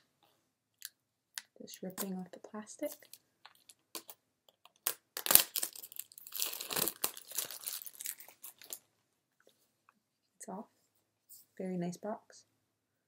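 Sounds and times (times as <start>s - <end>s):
sharp loud plastic tear: 4.8s - 7.6s
plastic shrink-wrap crinkling: 4.8s - 8.8s.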